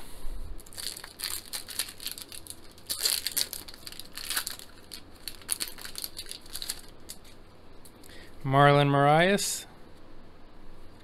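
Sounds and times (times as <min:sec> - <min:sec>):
foil wrapper crinkling and tearing: 0:00.6 - 0:07.4.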